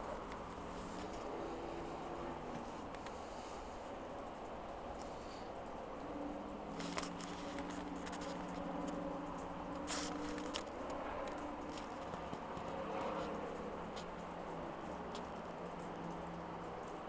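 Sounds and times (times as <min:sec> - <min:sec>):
steady hiss: 0:00.0 - 0:11.8
low steady hum: 0:00.0 - 0:17.0
raindrops pattering: 0:00.0 - 0:17.0.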